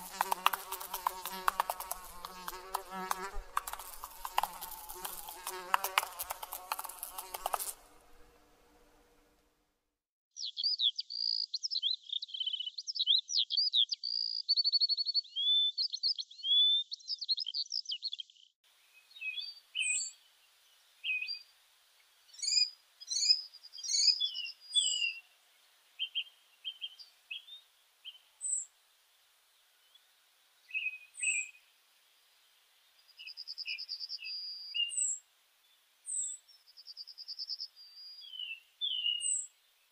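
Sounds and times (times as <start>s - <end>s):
birds singing: 10.4s - 20.1s, 22.4s - 25.3s, 36.1s - 39.5s.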